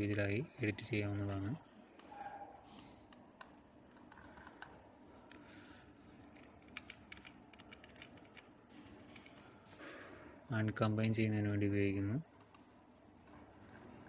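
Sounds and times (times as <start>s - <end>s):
computer keys and mouse clicking: 1.1s - 5.4s, 6.2s - 8.5s.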